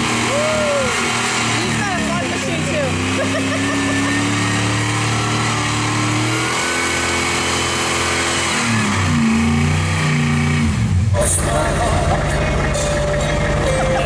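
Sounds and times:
engine revving at full throttle: 0:00.0 - 0:14.0.

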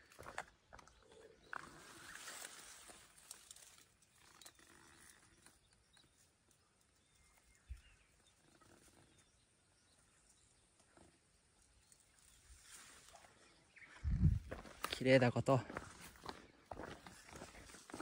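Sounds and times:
small ticks: 0:02.8 - 0:09.3.

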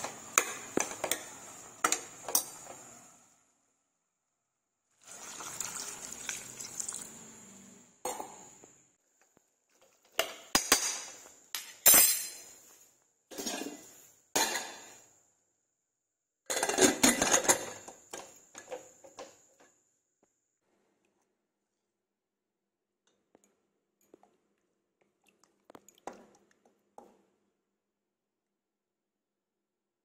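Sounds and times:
metal spoon scraping a pot: 0:13.3 - 0:14.9
pot lid clattering: 0:16.5 - 0:17.9.

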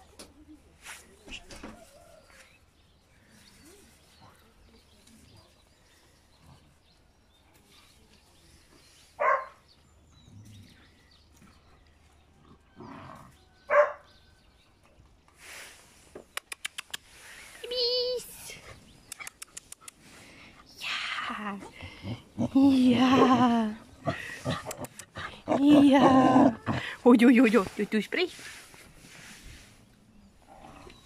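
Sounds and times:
young dogs barking: 0:09.2 - 0:09.6, 0:13.7 - 0:14.1, 0:22.9 - 0:26.9.

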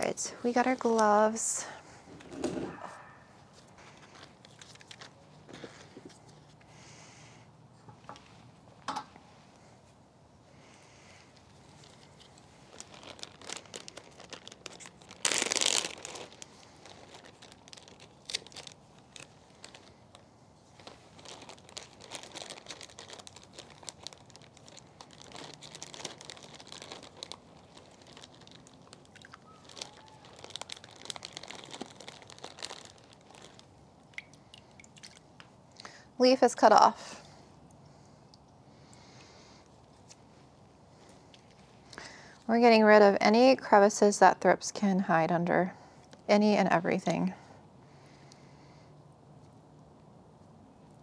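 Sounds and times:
plastic bag crinkling: 0:00.0 - 0:06.3, 0:11.4 - 0:35.2.

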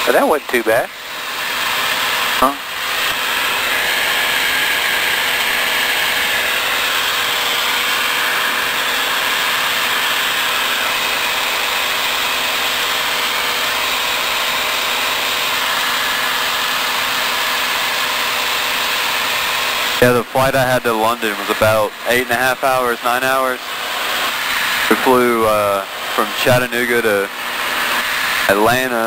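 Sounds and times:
light aircraft engine drone: 0:00.0 - 0:29.0.

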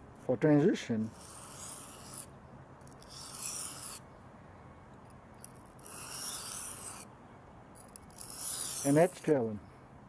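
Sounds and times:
knife scraping on sharpening stone: 0:01.1 - 0:02.3, 0:03.0 - 0:04.0, 0:05.5 - 0:07.0, 0:07.8 - 0:09.4.

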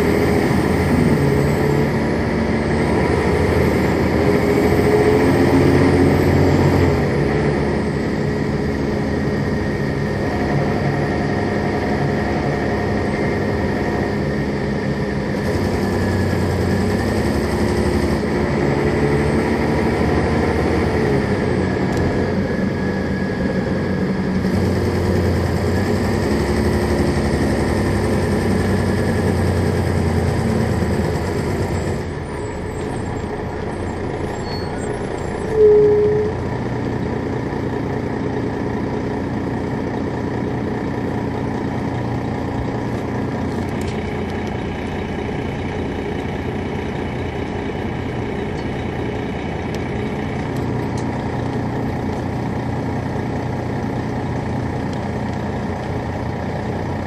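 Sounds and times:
diesel coach engine running: 0:00.0 - 0:57.0
short loud single tone: 0:34.4 - 0:36.4.

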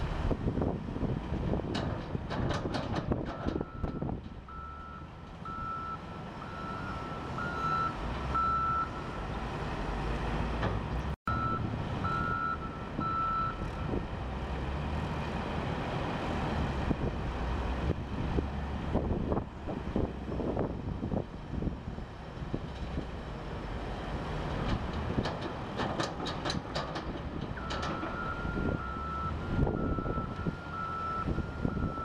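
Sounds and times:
reversing alarm beeping: 0:03.6 - 0:09.2, 0:11.3 - 0:13.9, 0:27.6 - 0:32.0.

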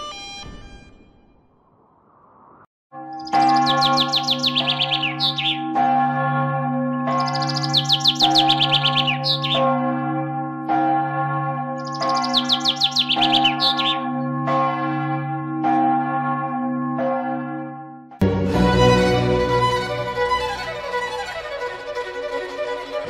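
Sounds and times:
church bells ringing: 0:02.9 - 0:23.0
bird singing high trills: 0:03.1 - 0:05.6, 0:07.2 - 0:09.7, 0:11.8 - 0:14.0.

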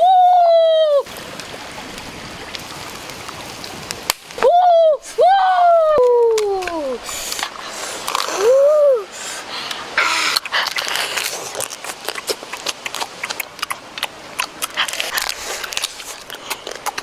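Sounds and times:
sucking and slurping: 0:06.6 - 0:17.0
crab shell cracking: 0:10.3 - 0:17.0.

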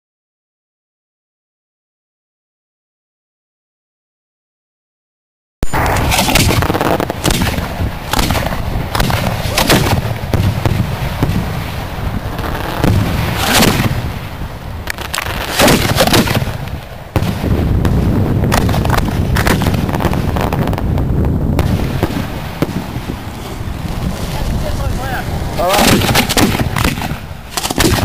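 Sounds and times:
steady hiss: 0:05.6 - 0:27.8
fireworks booming: 0:05.6 - 0:28.0.

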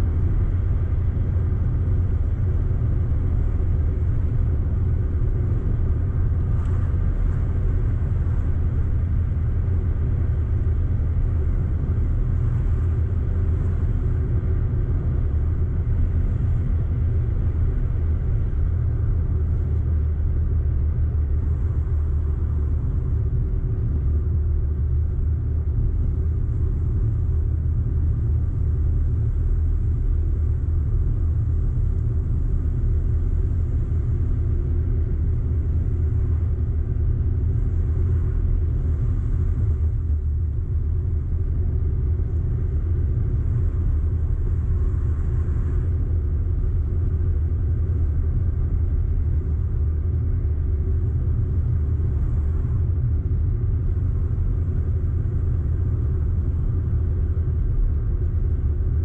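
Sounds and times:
car engine and road rumble: 0:00.0 - 0:59.0.

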